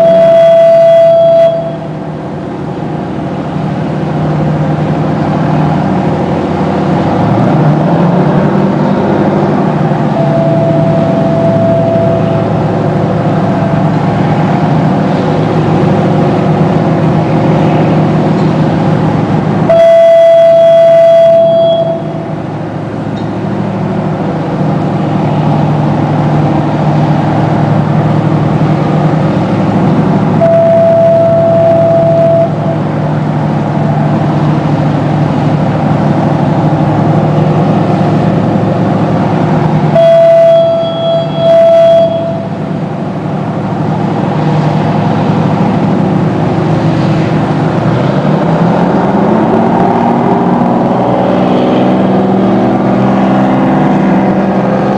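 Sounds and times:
fog horn blasts: 0:00.0 - 0:02.0, 0:10.0 - 0:14.7, 0:19.6 - 0:22.4, 0:30.4 - 0:32.9, 0:39.8 - 0:42.8
boat diesel engines running: 0:00.0 - 0:54.9.

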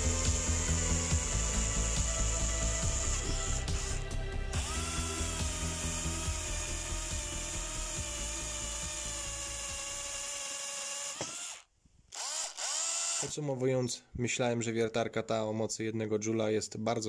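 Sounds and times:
cordless drill boring into wood: 0:00.0 - 0:13.4.

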